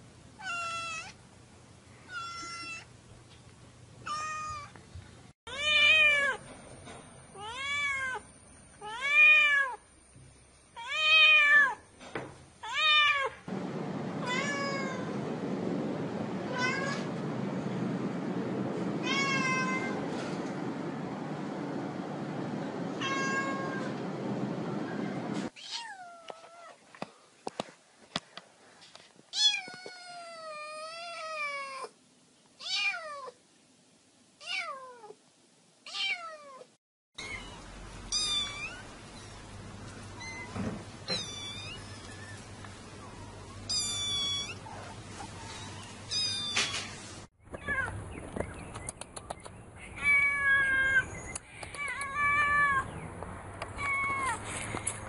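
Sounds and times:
cat meowing: 0:02.1 - 0:02.9, 0:04.1 - 0:04.7, 0:19.0 - 0:20.0, 0:23.0 - 0:23.9, 0:35.9 - 0:38.9, 0:40.2 - 0:42.1, 0:43.2 - 0:46.9, 0:50.0 - 0:51.1, 0:51.8 - 0:52.9, 0:53.8 - 0:54.4.

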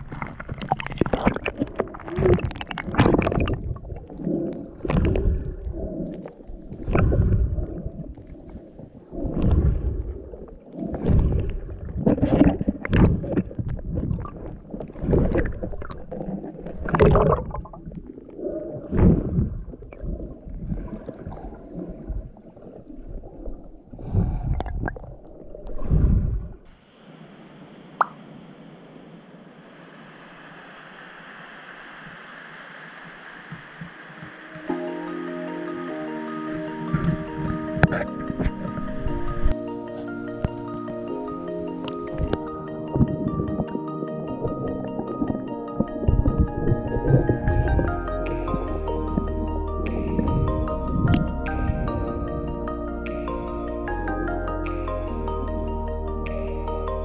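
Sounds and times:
muffled underwater sloshing and gurgling: 0:00.0 - 0:26.8, 0:36.5 - 0:52.7.

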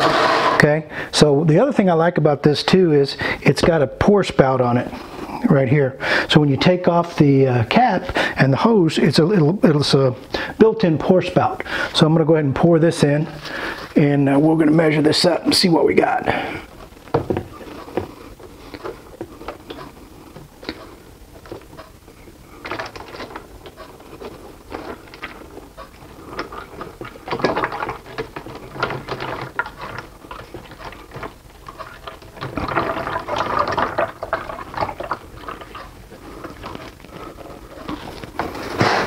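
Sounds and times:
oil pouring and splashing: 0:26.4 - 0:38.7.

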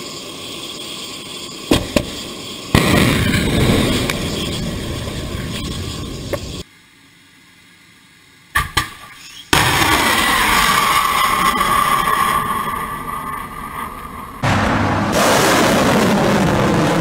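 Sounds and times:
sharp bangs: 0:01.7 - 0:06.4, 0:09.5 - 0:17.0.

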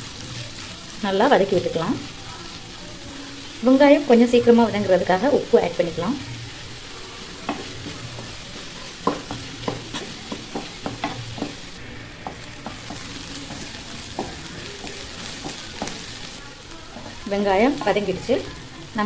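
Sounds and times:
onions sizzling in a pan: 0:00.0 - 0:19.0
spatula scraping a pan: 0:06.8 - 0:18.5.

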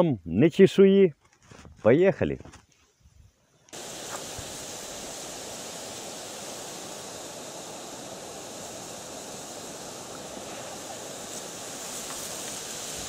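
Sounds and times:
steady wind: 0:03.1 - 0:13.0.

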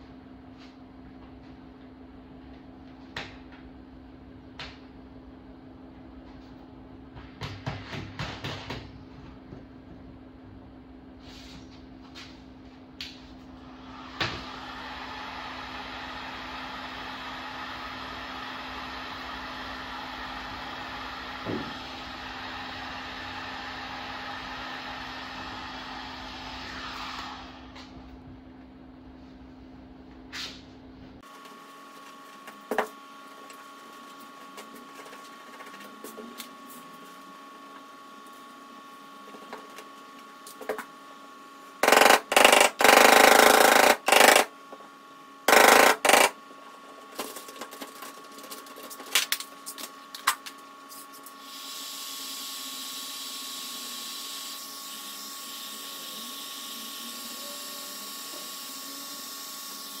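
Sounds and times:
heat gun blowing: 0:41.8 - 0:44.5, 0:45.5 - 0:46.4.

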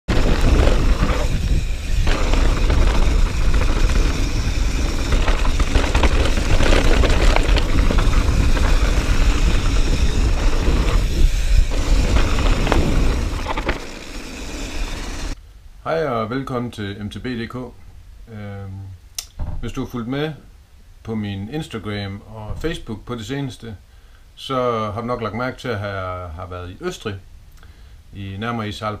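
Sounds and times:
bike knocking and rattling: 0:00.0 - 0:15.4
tyres rolling over gravel: 0:00.0 - 0:15.4
wind rumble on microphone: 0:00.0 - 0:15.4.

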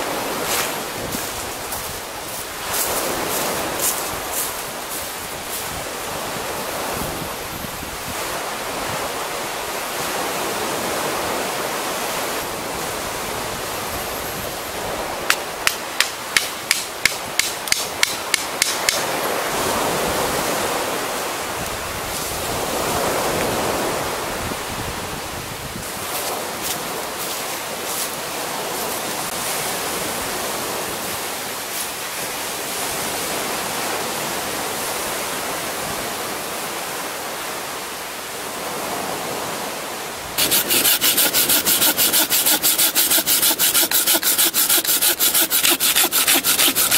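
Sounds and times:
hammer knocking tent stake: 0:15.3 - 0:19.0.

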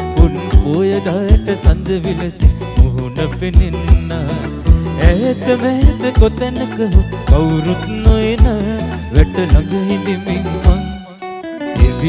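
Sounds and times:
bass-boosted band music: 0:00.0 - 0:12.0.

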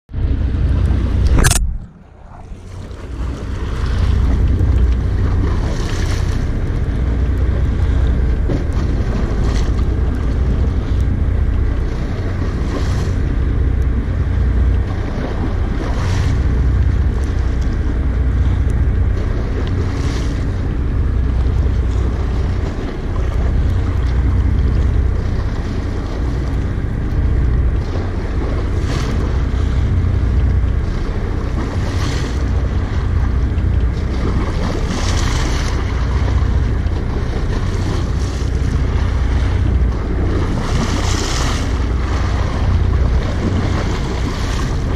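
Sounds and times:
waves slapping boat hull: 0:00.1 - 0:44.9
wind buffeting microphone: 0:00.1 - 0:44.9.

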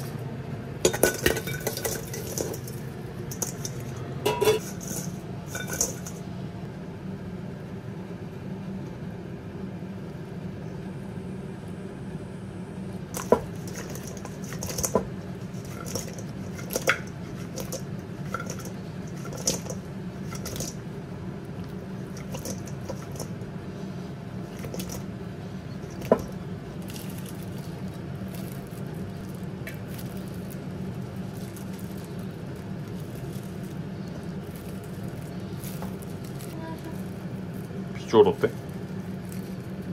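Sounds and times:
steady low hum: 0:00.0 - 0:39.9
metal bowl clinks: 0:00.9 - 0:06.2
wet squishing of sauced wings: 0:25.9 - 0:39.9.

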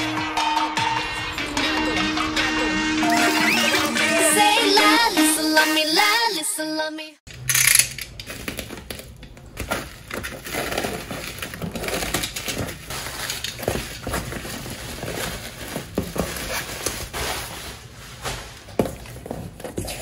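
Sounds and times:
packing tape being peeled: 0:07.3 - 0:18.8
bubble wrap crinkling: 0:08.1 - 0:20.0.

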